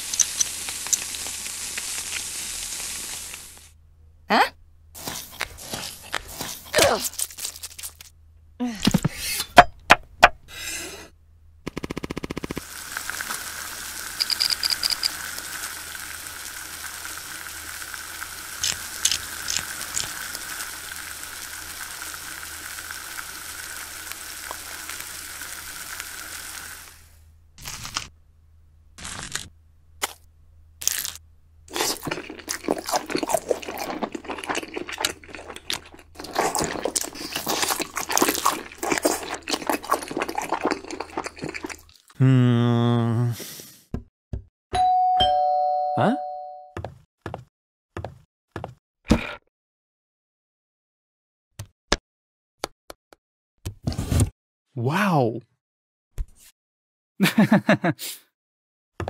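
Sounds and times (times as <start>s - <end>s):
frying sizzle in a pan: 0.0s - 3.7s, 12.6s - 27.2s.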